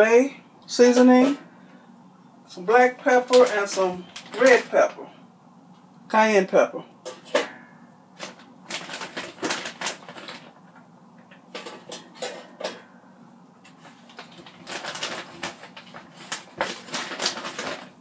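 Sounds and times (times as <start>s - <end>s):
plastic bag crinkling: 2.7s - 5.1s, 8.2s - 10.8s, 13.7s - 18.0s.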